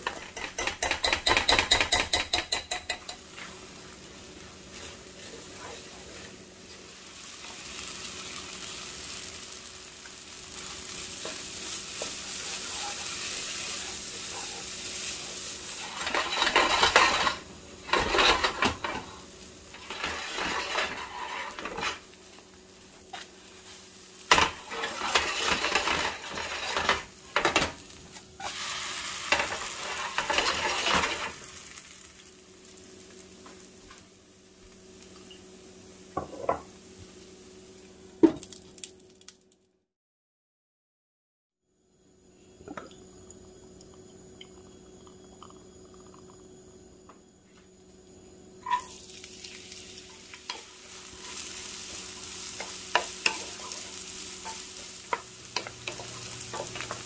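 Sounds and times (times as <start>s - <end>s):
food sizzling in a frying pan: 0.0s - 39.2s, 47.9s - 57.0s
utensil scraping a pan: 15.7s - 19.1s, 19.7s - 22.0s, 24.3s - 27.1s, 29.3s - 31.3s.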